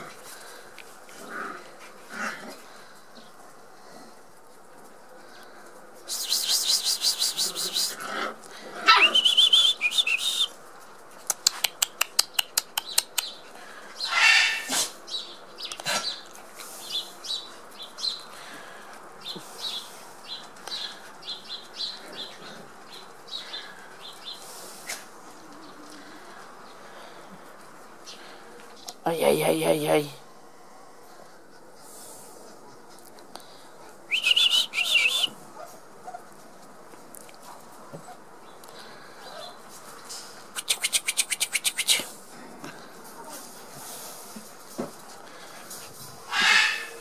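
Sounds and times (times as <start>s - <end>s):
puppies yelping and squealing: 8.8s - 10.1s, 14.0s - 14.9s, 46.2s - 47.0s
birds chirping: 8.9s - 10.6s, 33.4s - 35.3s.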